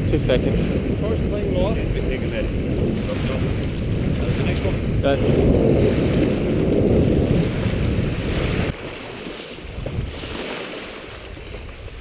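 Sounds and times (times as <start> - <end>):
wind buffeting microphone: 0.0 - 12.0
small waves breaking on rocks: 5.3 - 12.0.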